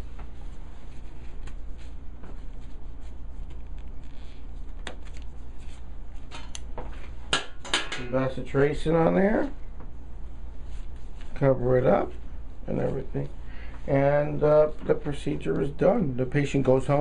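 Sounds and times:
steady low hum: 0.0 - 17.0
metal instruments clicking and tapping: 7.4 - 8.2.

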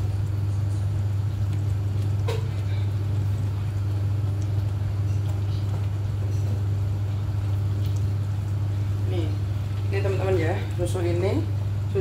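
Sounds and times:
extractor fan humming: 0.0 - 12.0.

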